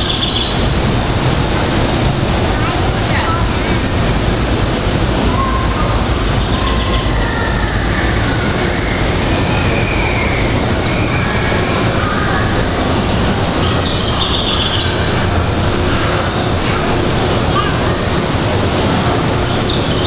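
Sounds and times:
high wheel squeal: 0:05.0 - 0:20.0.

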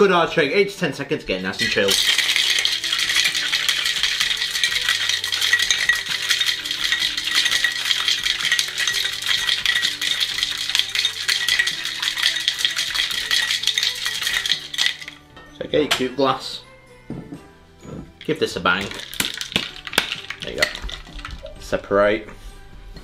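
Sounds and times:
ice cubes rattling in a shaker: 0:01.6 - 0:15.2, 0:18.2 - 0:21.7.

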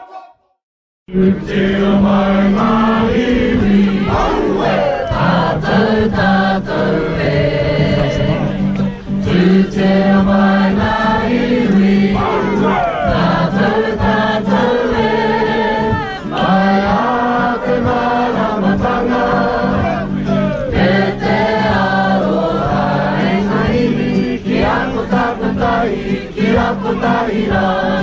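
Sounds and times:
choir singing: 0:00.0 - 0:28.0.

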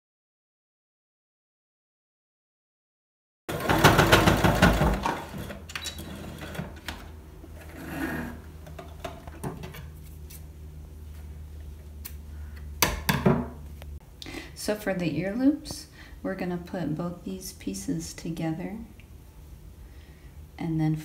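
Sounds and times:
sewing machine stitching: 0:03.5 - 0:08.4
low steady hum: 0:04.6 - 0:21.0.

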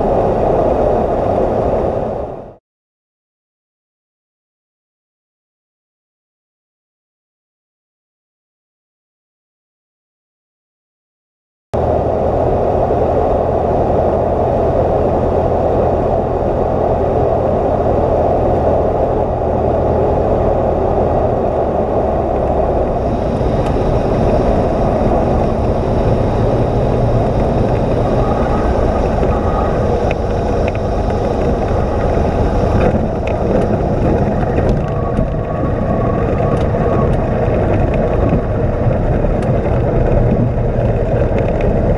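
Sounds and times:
airplane engine and propeller: 0:00.0 - 0:02.6, 0:11.8 - 0:41.9
wind rush: 0:00.0 - 0:02.6, 0:11.8 - 0:41.9.

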